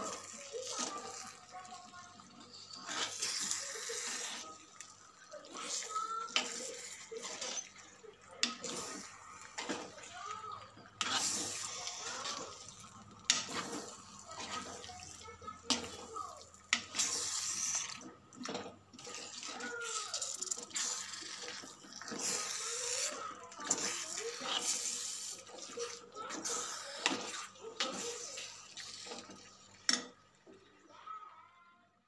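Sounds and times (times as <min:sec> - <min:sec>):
spoon stirring wet marinade: 0:08.4 - 0:16.1.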